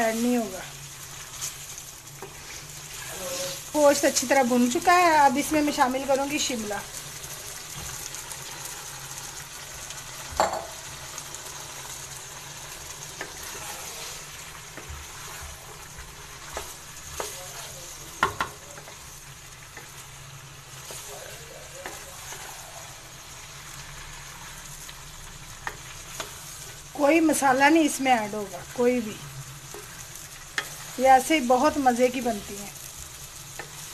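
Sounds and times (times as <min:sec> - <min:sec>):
curry sizzling in frying pan: 0:00.0 - 0:33.9
spatula scraping and knocking pan: 0:13.1 - 0:19.0.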